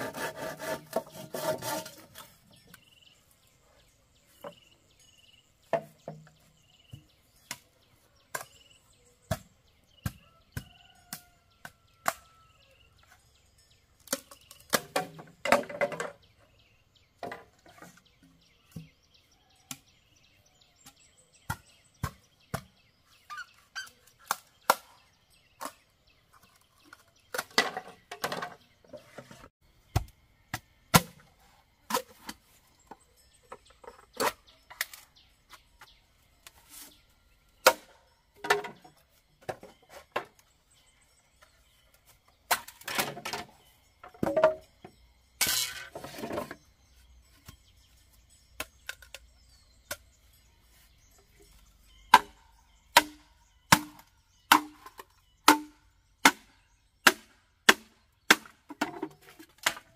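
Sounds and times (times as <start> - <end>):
blade chopping bamboo: 0.0 - 2.2, 29.9 - 31.2, 52.1 - 59.9.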